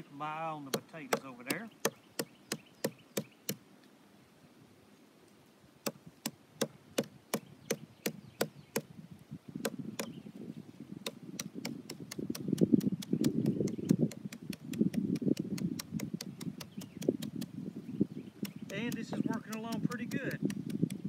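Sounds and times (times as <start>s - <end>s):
wood knocking on log: 18.4s - 21.0s.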